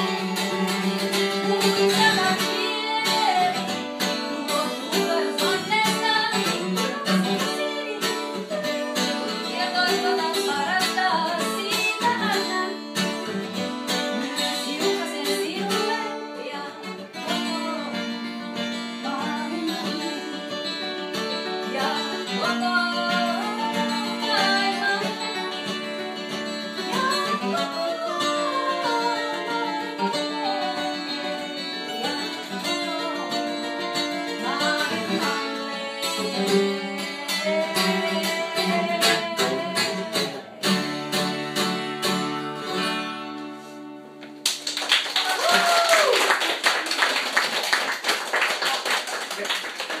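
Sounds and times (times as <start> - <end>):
woman singing folk song: 0.0 - 43.6
fingerpicked acoustic guitar: 0.0 - 44.4
applause: 44.4 - 50.0
person whooping: 45.2 - 46.4.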